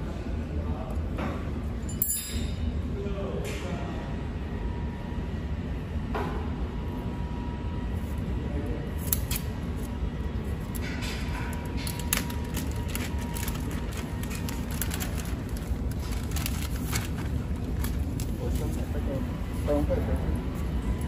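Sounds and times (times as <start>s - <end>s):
low machine hum: 0.0s - 21.0s
plastic film crinkling: 10.6s - 19.0s.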